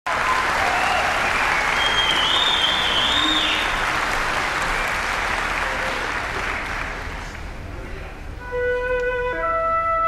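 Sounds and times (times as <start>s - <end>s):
audience applauding: 0.1s - 7.6s
shrill high whistle: 0.9s - 3.7s.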